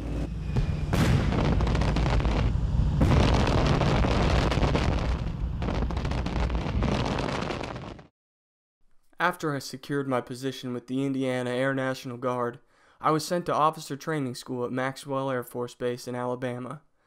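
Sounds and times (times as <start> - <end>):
heavy rumble: 0.0 - 8.1
cannon shells exploding: 0.5 - 8.1.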